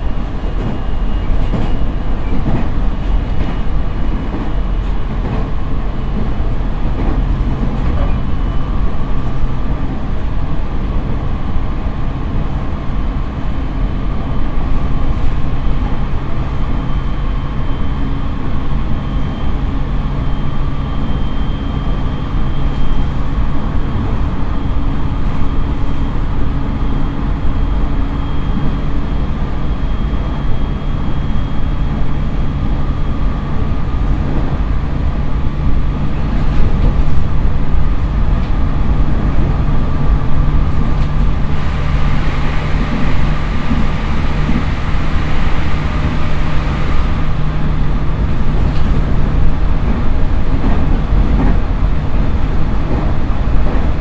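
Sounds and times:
wheels rumbling on rail: 0.0s - 54.0s
train motor whine: 14.0s - 54.0s.

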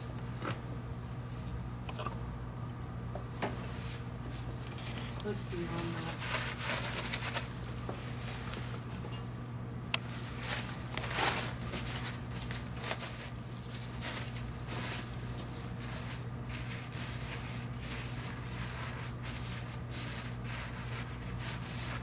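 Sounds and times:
steady low hum: 0.0s - 22.0s
plastic pad crinkling: 4.2s - 9.0s, 10.0s - 22.0s.

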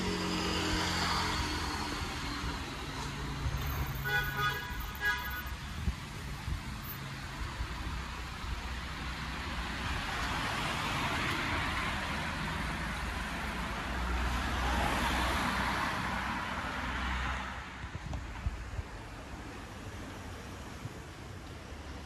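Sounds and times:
cars driving past: 0.0s - 4.7s, 5.9s - 18.0s.

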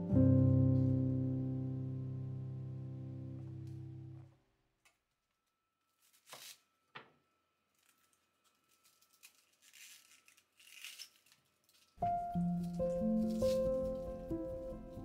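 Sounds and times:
soft rustling and crinkling: 4.9s - 7.1s, 7.7s - 15.0s.

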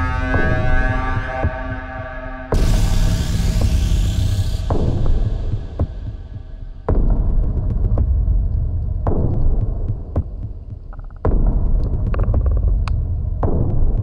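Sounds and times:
electronic pulse over drone: 0.0s - 7.1s
heavy low hits: 0.0s - 14.0s.

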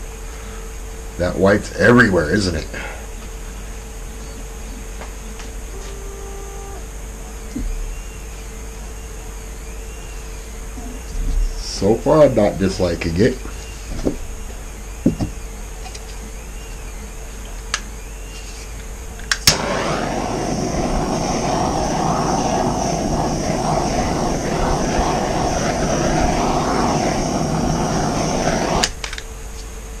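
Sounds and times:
low steady hum: 0.0s - 13.4s, 19.5s - 29.5s
electric blower whooshing: 19.5s - 29.0s.

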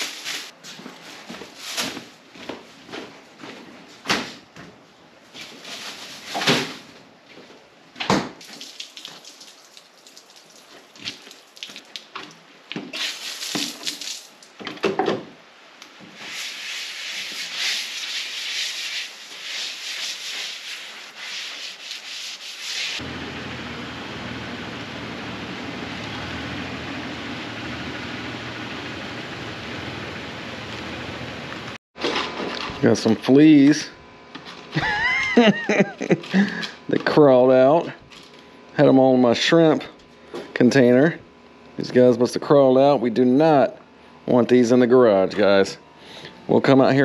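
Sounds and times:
garden hose spraying water: 8.4s - 12.1s, 12.9s - 14.5s, 16.2s - 21.8s.

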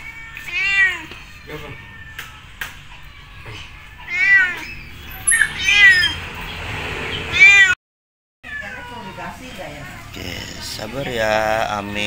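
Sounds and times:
cat meowing: 0.0s - 6.2s, 7.3s - 7.8s.

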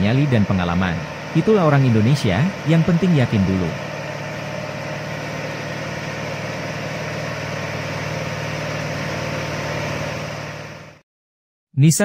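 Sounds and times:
truck diesel engine droning: 0.0s - 11.0s.

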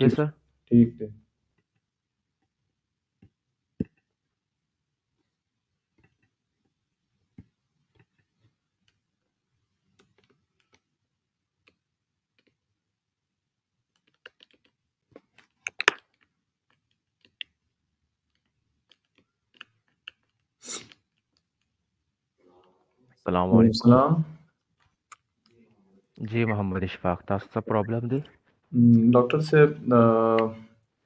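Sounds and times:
keyboard and mouse clicks: 3.2s - 4.2s, 5.9s - 6.4s, 7.3s - 9.0s, 9.9s - 10.9s, 13.9s - 21.8s.

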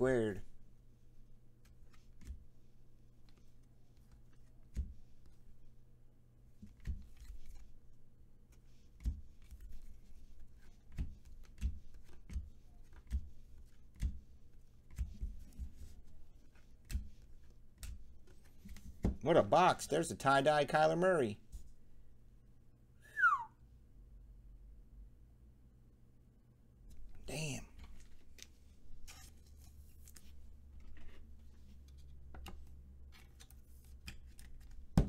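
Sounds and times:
cards tapping and sliding: 1.6s - 2.6s, 3.2s - 5.5s, 6.6s - 7.8s, 8.5s - 19.2s, 27.8s - 35.0s.

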